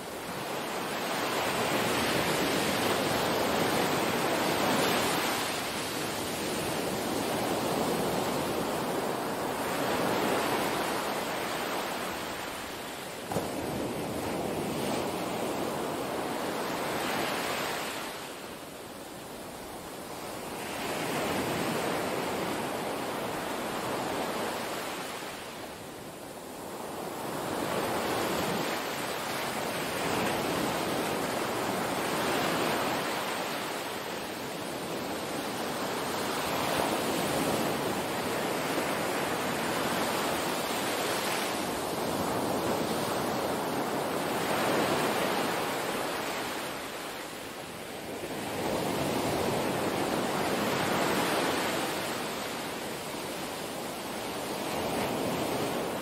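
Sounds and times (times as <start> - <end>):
waves washing on beach: 0.0 - 56.0.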